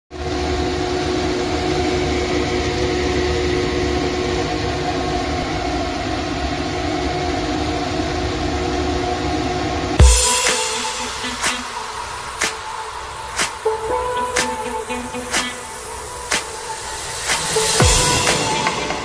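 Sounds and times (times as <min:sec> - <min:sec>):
low drone: 0:10.0 - 0:19.0
wok stir-fry sizzling: 0:10.0 - 0:19.0.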